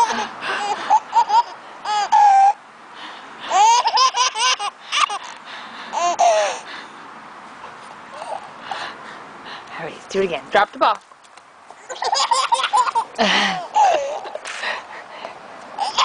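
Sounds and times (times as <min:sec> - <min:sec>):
baby laughing: 0:00.0 - 0:02.6, 0:03.5 - 0:06.6, 0:08.1 - 0:08.6, 0:11.8 - 0:14.6, 0:15.7 - 0:16.0.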